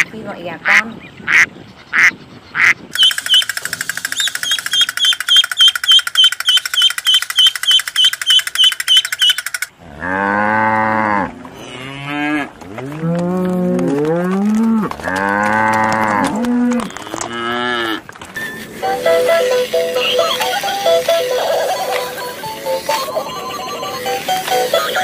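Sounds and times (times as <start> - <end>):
ducklings peeping: 0.7 - 9.7, 19.2 - 25.0
cattle mooing: 9.8 - 18.0.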